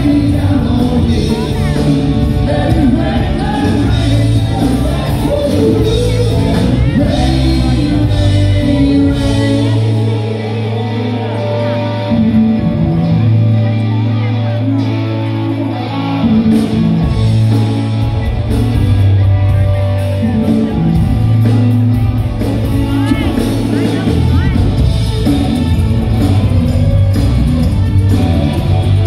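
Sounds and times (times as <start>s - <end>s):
person singing: 0.0s - 13.2s
live rock band playing: 0.0s - 29.0s.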